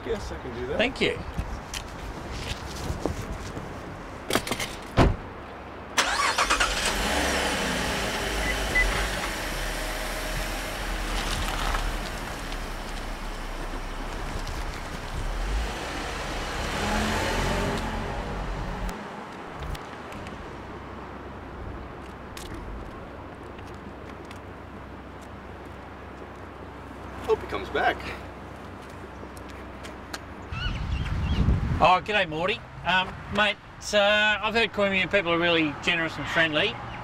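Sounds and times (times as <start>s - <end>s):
car door thumping shut: 5.0s - 5.3s
car engine starting and revving: 6.0s - 19.0s.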